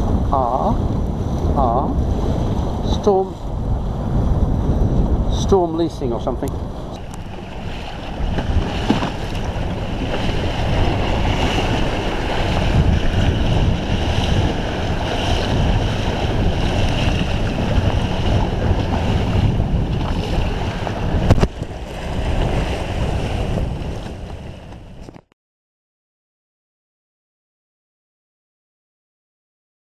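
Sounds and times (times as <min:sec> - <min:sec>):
waves splashing against hull: 0:00.0 - 0:25.3
wind buffeting microphone: 0:00.0 - 0:25.3.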